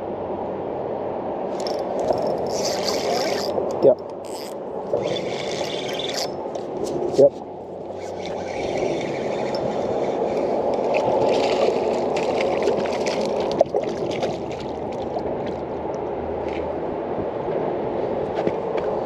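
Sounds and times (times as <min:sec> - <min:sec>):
fast-flowing river water: 0:07.5 - 0:17.2.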